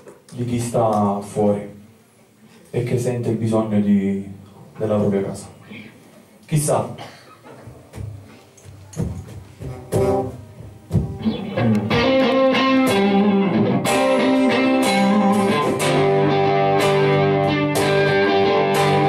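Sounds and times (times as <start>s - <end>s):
acoustic and electric guitars: 9.6s - 19.0s.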